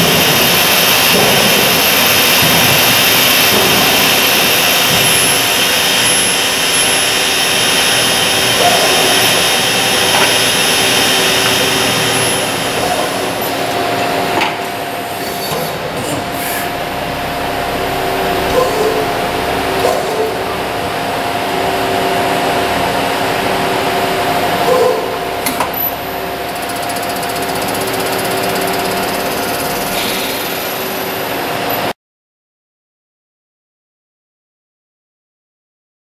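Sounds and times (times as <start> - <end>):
lathe machine hum and whine: 0.0 - 32.0
tooling tone: 25.8 - 30.2.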